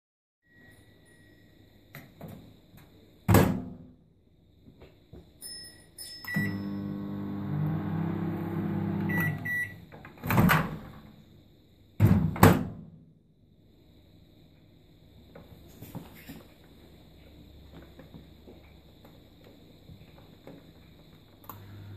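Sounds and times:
keypad beeps: 6.2s - 6.6s, 9.0s - 9.8s
microwave oven humming: 6.4s - 9.8s, 21.5s - 21.9s
short beeps: 9.1s - 9.8s.

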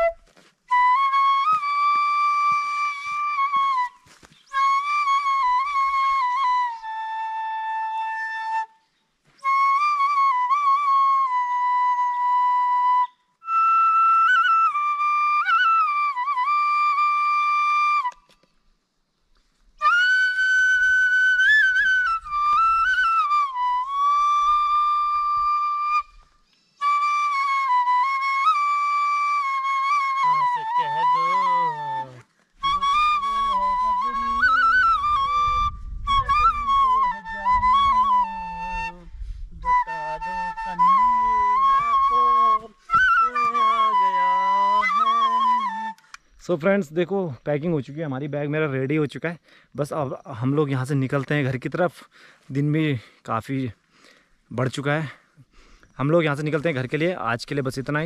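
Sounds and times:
solo flute melody: 0.0s - 18.5s, 19.6s - 46.9s.

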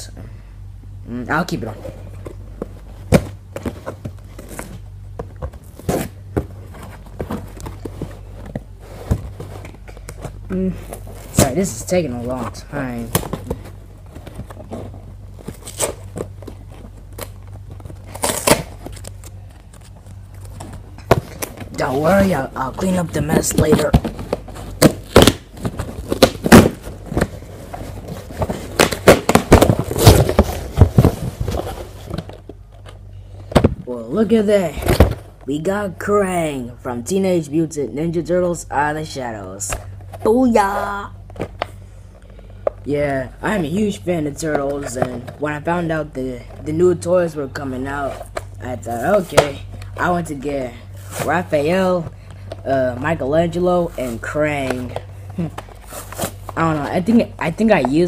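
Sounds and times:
cardboard box tearing and scraping: 18.1s - 18.8s, 23.6s - 32.2s
hands bumping box: 28.0s - 32.4s.

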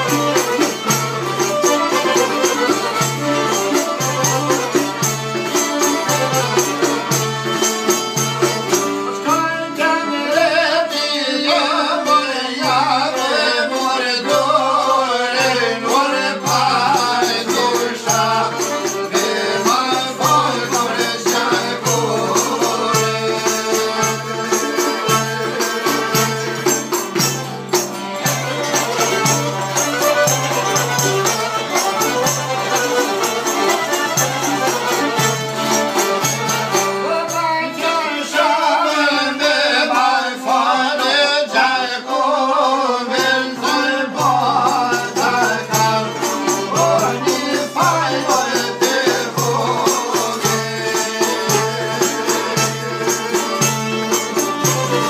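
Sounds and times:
jingling frame drum: 0.0s - 9.6s, 15.4s - 37.9s, 43.2s - 55.0s
plucked lutes: 0.0s - 9.6s, 16.6s - 37.5s
men singing: 0.0s - 55.0s.

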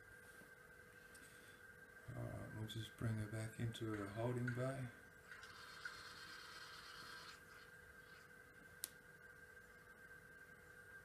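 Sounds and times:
faint high hum: 0.0s - 11.0s.

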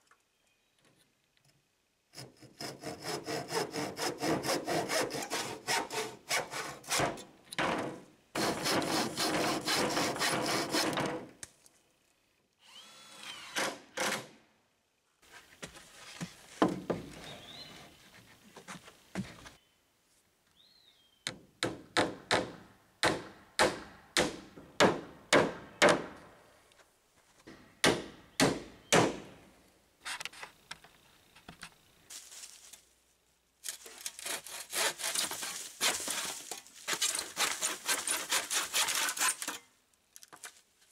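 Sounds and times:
handsaw cutting wooden board: 2.2s - 7.1s, 8.4s - 11.1s, 34.2s - 36.2s, 36.9s - 39.6s
hand saw cutting plastic roofing: 2.2s - 7.2s, 8.4s - 11.2s, 33.8s - 39.7s.

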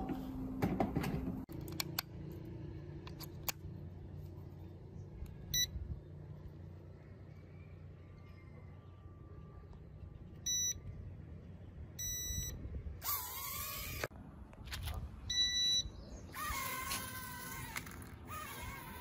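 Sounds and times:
short electronic beeps: 5.5s - 5.7s, 10.5s - 10.8s, 12.0s - 12.6s, 15.3s - 16.0s
toy drone motors whining: 13.0s - 14.1s, 16.3s - 19.0s.

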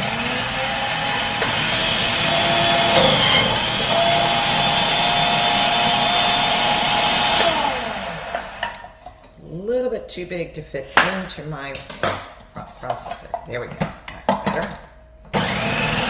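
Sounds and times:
food processor motor whining: 0.0s - 8.7s, 15.3s - 16.0s.

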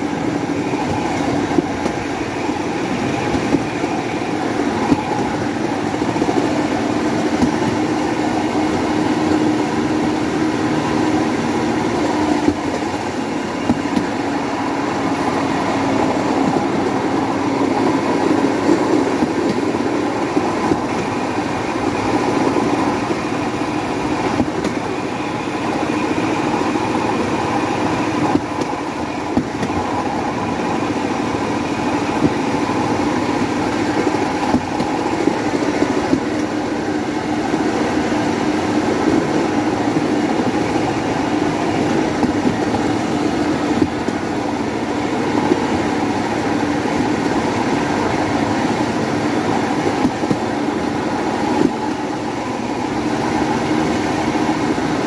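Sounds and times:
wheels rolling on rails: 0.0s - 55.0s.

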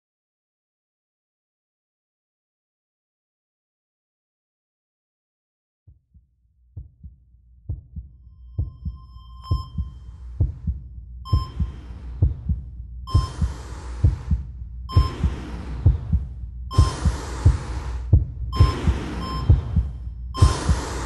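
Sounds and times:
heartbeat double thump: 6.8s - 21.0s.

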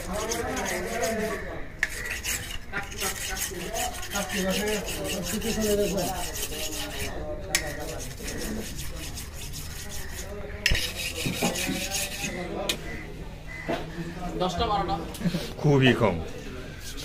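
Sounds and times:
blade scraping fish scales: 0.0s - 12.4s, 16.7s - 17.0s.

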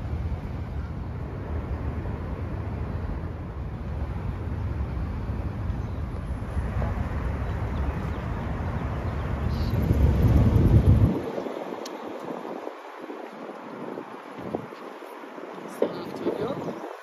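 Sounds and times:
traffic noise: 0.0s - 17.0s
wind buffeting microphone: 0.0s - 17.0s
low rumble: 1.2s - 11.2s.

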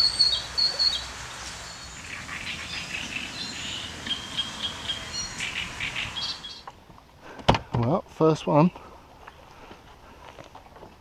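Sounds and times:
small birds chirping: 0.0s - 6.7s.

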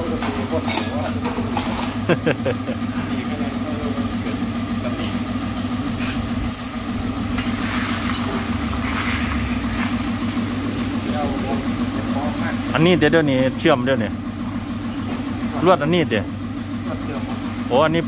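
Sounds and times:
engine idling: 0.0s - 18.0s
brief hissing: 7.5s - 8.1s.

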